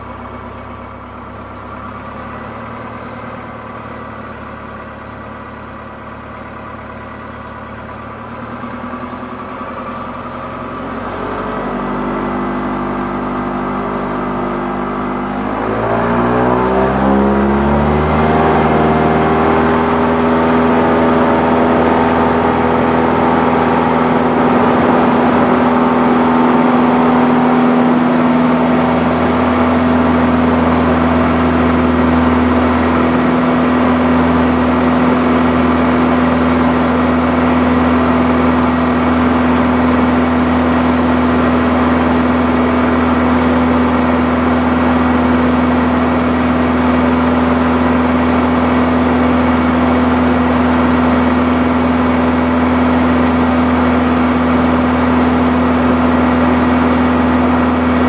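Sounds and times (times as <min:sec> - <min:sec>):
propeller plane engine drone: 0:00.0 - 0:58.0
air rushing through cabin: 0:19.5 - 0:29.4.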